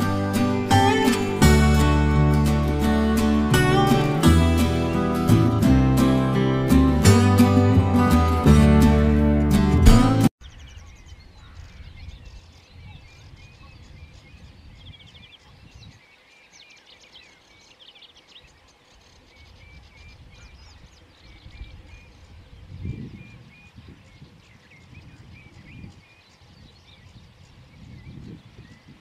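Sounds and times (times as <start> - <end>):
small birds calling and singing: 10.4 - 29.0.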